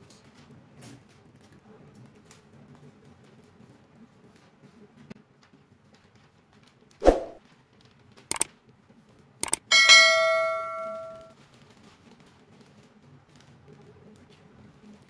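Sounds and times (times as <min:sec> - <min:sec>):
brief whoosh: 0:07.0 - 0:07.4
mouse clicks: 0:09.4 - 0:09.6
notification bell ding: 0:09.4 - 0:11.3.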